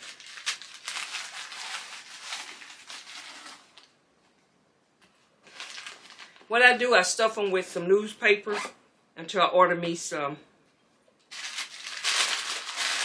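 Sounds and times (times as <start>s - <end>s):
newspaper rustling and crackling: 0.0s - 3.9s, 5.4s - 6.5s, 11.3s - 13.0s.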